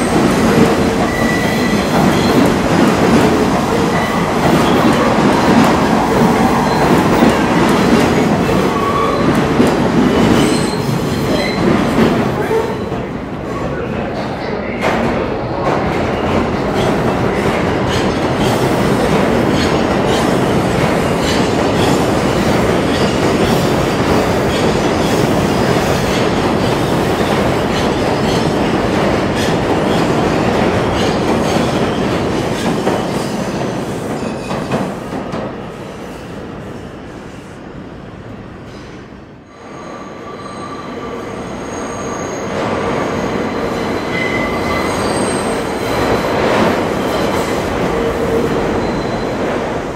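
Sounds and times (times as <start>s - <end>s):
subway train running in tunnel: 0.0s - 49.9s
train wheels squealing: 1.1s - 2.4s, 10.2s - 11.7s, 39.6s - 45.8s, 48.7s - 49.4s.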